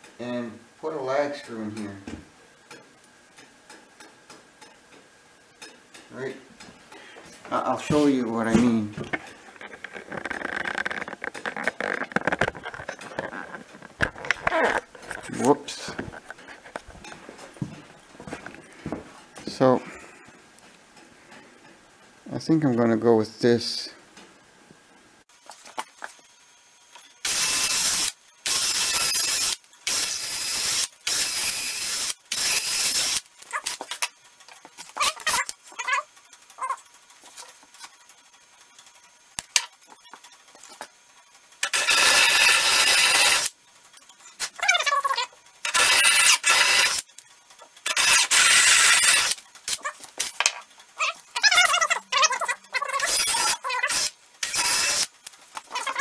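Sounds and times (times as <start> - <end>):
wavering squealing tones: 9.3 - 15.5, 51.0 - 55.0
cordless drill boring into log: 27.2 - 33.2, 41.6 - 43.5, 45.6 - 47.0, 47.8 - 49.4, 53.0 - 55.1.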